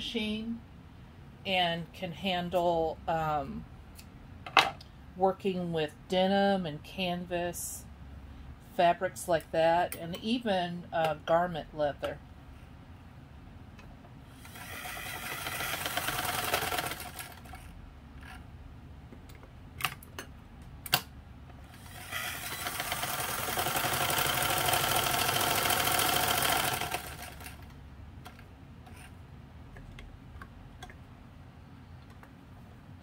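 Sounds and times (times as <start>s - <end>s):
sewing machine stitching: 14.4s - 17.6s, 21.7s - 27.7s.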